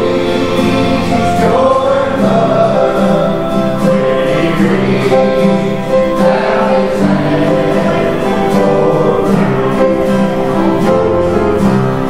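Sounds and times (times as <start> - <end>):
acoustic guitar: 0.0 - 12.0
group singing gospel song: 0.0 - 12.0.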